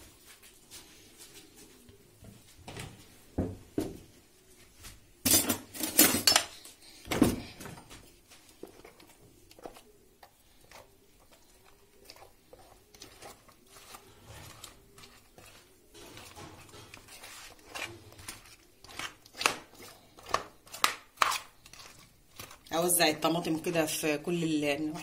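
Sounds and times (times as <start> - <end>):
wet squishing of sauce: 8.0 - 22.8.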